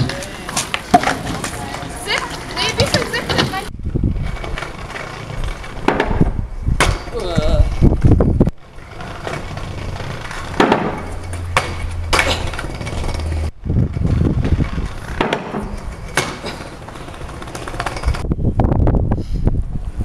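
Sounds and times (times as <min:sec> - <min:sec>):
scooter deck clacking on ground: 0:00.0 - 0:03.7, 0:07.8 - 0:18.3
scooter wheels rolling on paving: 0:00.0 - 0:18.5.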